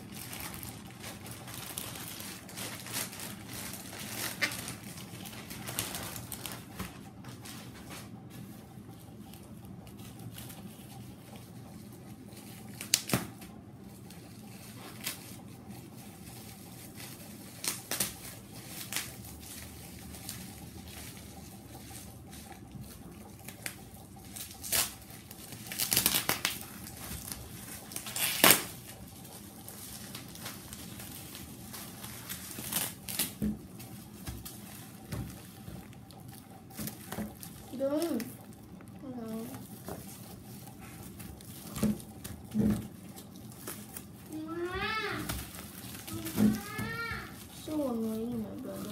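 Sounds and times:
plastic crackles and tears: 0:00.0 - 0:07.6, 0:09.2 - 0:48.9
plastic packaging crinkling: 0:00.0 - 0:48.9.

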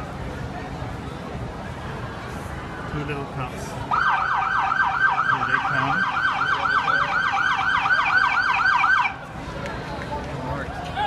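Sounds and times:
police siren yelping: 0:03.9 - 0:09.2.

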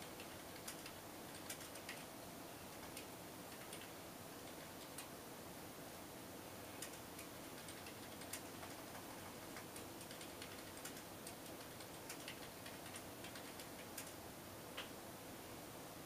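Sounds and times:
small sharp ticks and clicks: 0:00.0 - 0:02.1, 0:02.7 - 0:05.1, 0:06.8 - 0:14.2
low steady hum: 0:00.0 - 0:16.0.

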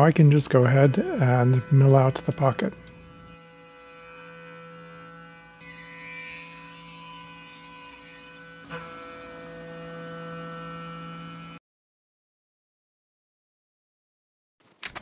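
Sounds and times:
milling machine spindle hum: 0:00.0 - 0:11.6.

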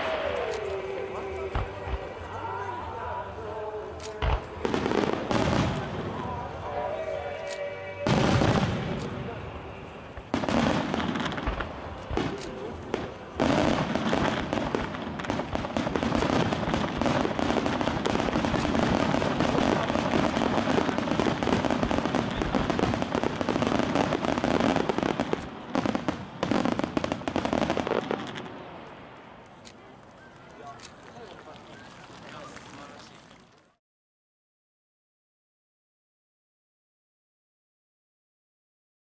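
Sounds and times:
firework shell bursts and crackling: 0:10.1 - 0:28.6.

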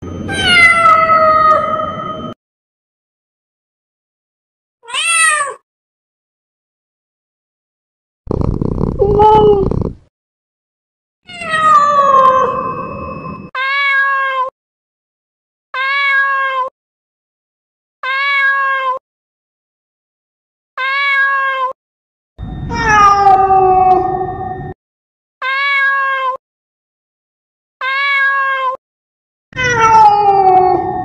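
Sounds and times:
cat meowing: 0:00.3 - 0:01.9, 0:04.8 - 0:05.6, 0:08.3 - 0:09.9, 0:11.3 - 0:12.8, 0:13.6 - 0:14.5, 0:15.8 - 0:16.7, 0:18.0 - 0:19.0, 0:20.8 - 0:21.8, 0:22.7 - 0:24.3, 0:25.4 - 0:26.4, 0:27.8 - 0:28.8, 0:29.6 - 0:31.0.

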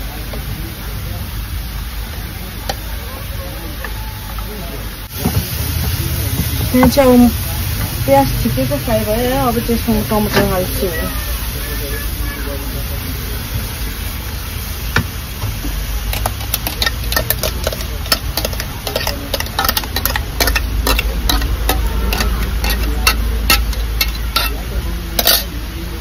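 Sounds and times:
spatula scraping and knocking pan: 0:14.9 - 0:24.6.

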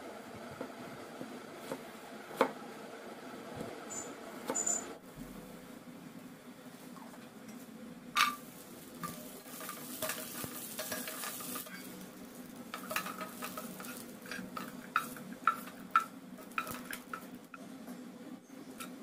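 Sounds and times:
spatula scraping a pan: 0:08.2 - 0:17.3
nuts sizzling in hot fat: 0:08.2 - 0:17.6.

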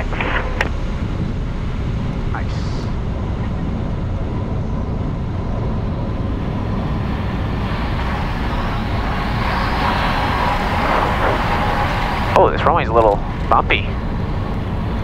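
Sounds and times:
aircraft engine at low power: 0:00.0 - 0:15.0
rush of air over airframe: 0:06.2 - 0:12.4
bright hissing rush: 0:07.7 - 0:13.2.

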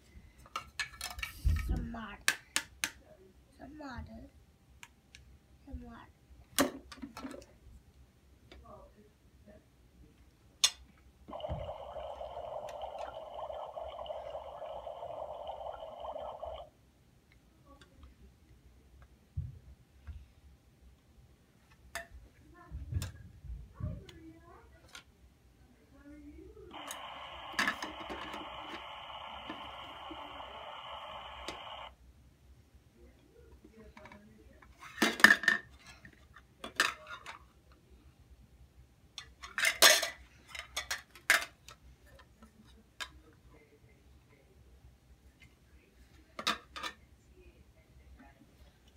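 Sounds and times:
tinny electronic hiss and whistle: 0:11.3 - 0:16.7, 0:26.7 - 0:31.9
toy pots and pans clattering: 0:39.5 - 0:41.5.

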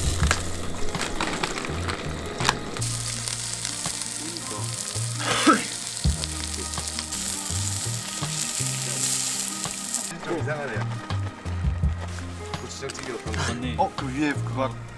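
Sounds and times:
background music with bass: 0:00.0 - 0:14.9
food sizzling: 0:00.0 - 0:14.9.

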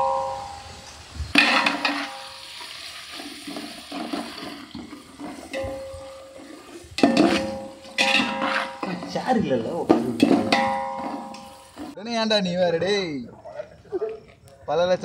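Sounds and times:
onions sizzling in oil: 0:00.0 - 0:12.0
metal spatula scraping pot: 0:01.4 - 0:12.0.

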